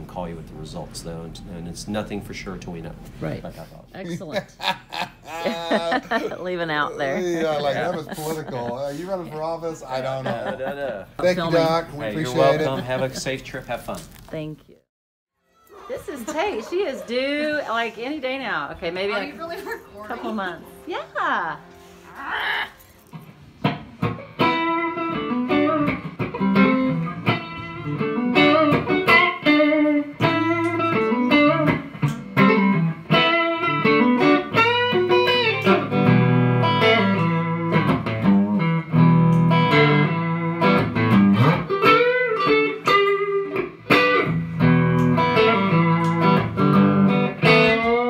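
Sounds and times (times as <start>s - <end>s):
electric guitar lead lines: 23.2s - 48.0s.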